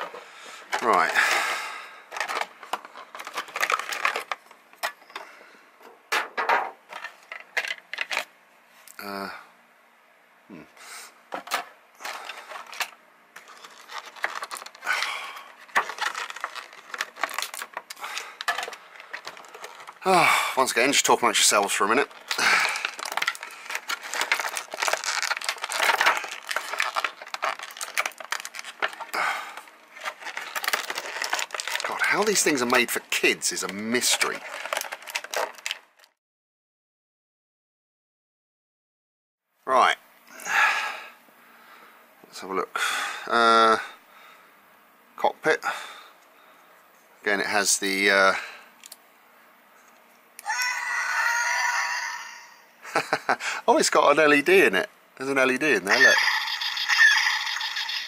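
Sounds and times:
plastic bag crinkling: 0:00.0 - 0:04.9, 0:11.5 - 0:36.2, 0:55.9 - 0:56.9
plastic packaging crackling: 0:00.0 - 0:05.2, 0:06.9 - 0:08.3, 0:11.4 - 0:36.2
plastic parts clicking: 0:15.7 - 0:20.0, 0:22.1 - 0:29.2, 0:34.1 - 0:36.1.

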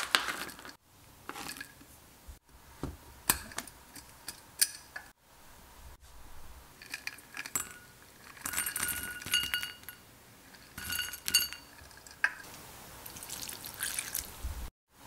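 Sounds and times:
granola clattering into bowl: 0:00.0 - 0:01.8
glass clinking against bowl: 0:06.9 - 0:10.0, 0:10.7 - 0:12.4
milk pouring: 0:13.0 - 0:14.4.

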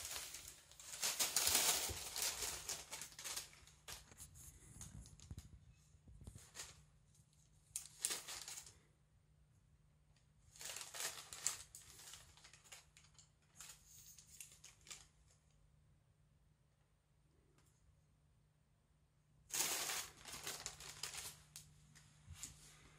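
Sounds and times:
paper bag crinkling: 0:00.0 - 0:05.5, 0:07.7 - 0:08.8, 0:10.5 - 0:15.2, 0:19.5 - 0:21.7.

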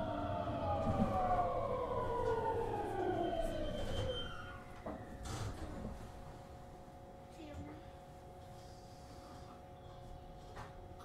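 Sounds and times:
train running gear rumble: 0:00.0 - 0:06.5.

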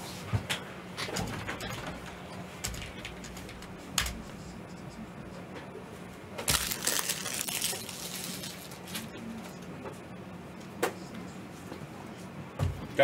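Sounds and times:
packaging crinkling: 0:06.4 - 0:09.1.

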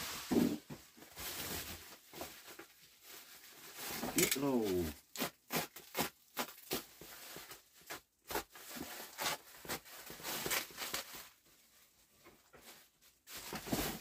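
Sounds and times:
plastic wrapping crinkling: 0:00.0 - 0:14.0.

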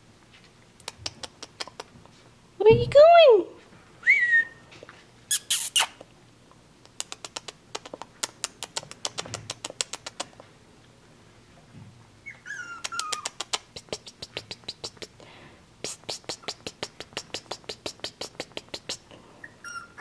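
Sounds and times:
puppy claws clicking on floor: 0:00.8 - 0:02.0, 0:06.9 - 0:10.5, 0:12.8 - 0:15.2
puppy whine: 0:12.2 - 0:13.5, 0:19.4 - 0:20.0.

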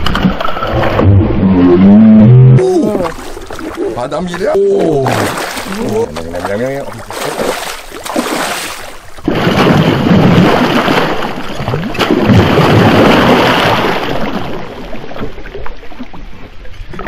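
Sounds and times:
fish thrashing and splashing: 0:02.6 - 0:15.4.

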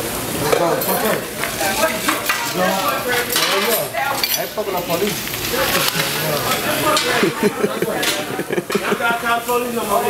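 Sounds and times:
food sizzling on griddle: 0:00.0 - 0:10.0
dishes and cutlery clattering: 0:02.0 - 0:05.1, 0:05.7 - 0:09.0.

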